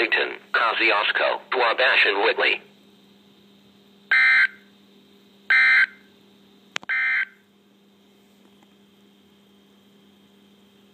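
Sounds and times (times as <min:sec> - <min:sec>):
harsh buzzing data tones: 0:00.0 - 0:06.1, 0:06.8 - 0:07.5
steady low hum: 0:00.0 - 0:10.9.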